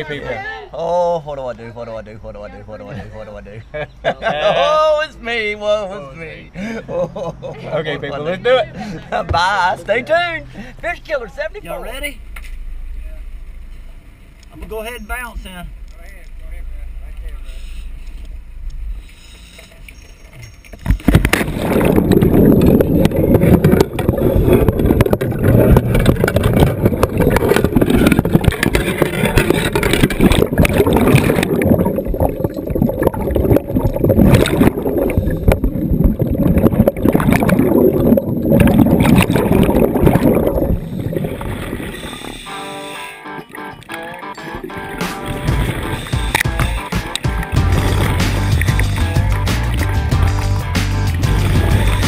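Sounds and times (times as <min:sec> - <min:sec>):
underwater churning bubbles: 0:20.8 - 0:42.6, 0:44.5 - 0:50.1, 0:51.2 - 0:52.0.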